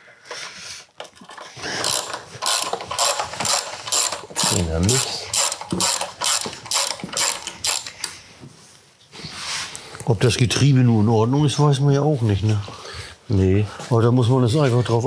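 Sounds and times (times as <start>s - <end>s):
ratchet wrench clicking: 1.7s - 8.1s.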